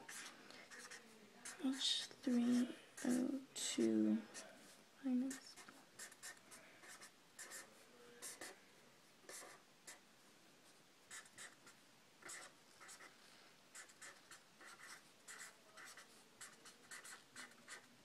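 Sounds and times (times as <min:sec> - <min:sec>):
pen scratching on paper: 0:00.0 - 0:03.4, 0:05.3 - 0:08.6, 0:09.3 - 0:10.0, 0:11.1 - 0:13.1, 0:13.8 - 0:17.9.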